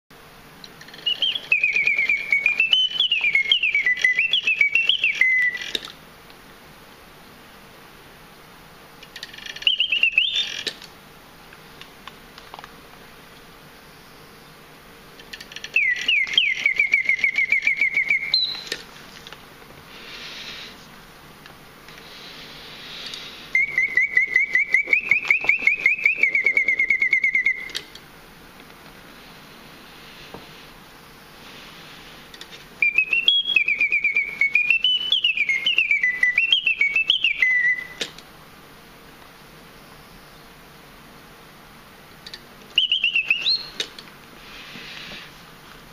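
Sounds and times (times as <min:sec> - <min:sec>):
mechanical birdsong whistle: 0:00.8 - 0:05.9, 0:09.2 - 0:10.8, 0:15.4 - 0:18.8, 0:23.1 - 0:28.0, 0:32.8 - 0:38.2, 0:42.7 - 0:43.9.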